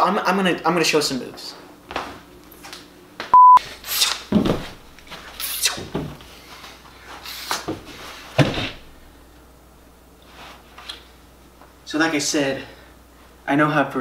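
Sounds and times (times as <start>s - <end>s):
short loud beep: 3.4s - 3.6s
sharp hissing swooshes: 5.4s - 5.9s.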